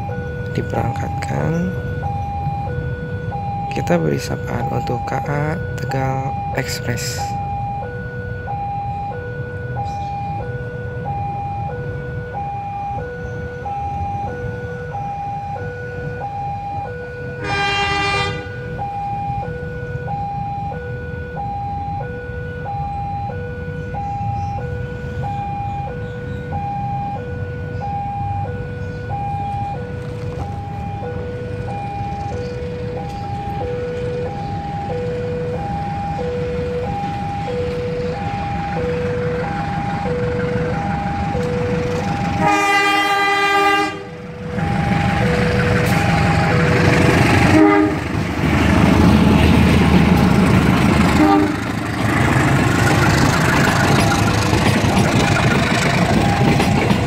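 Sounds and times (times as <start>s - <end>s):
level-crossing two-tone alarm: 0.0s - 50.2s, 52.6s - 57.0s
locomotive horn blast: 17.4s - 18.7s, 41.9s - 54.3s.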